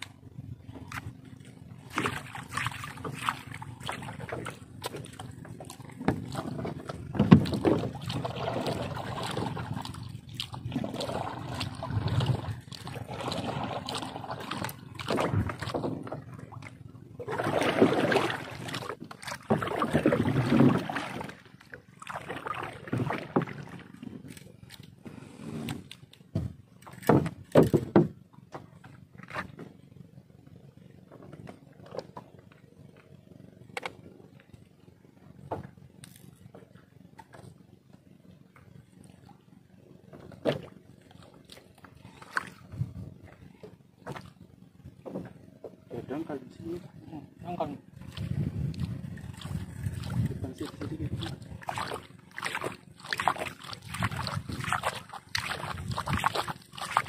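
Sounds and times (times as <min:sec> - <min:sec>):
water sloshing and splashing: 0:00.0 - 0:57.0.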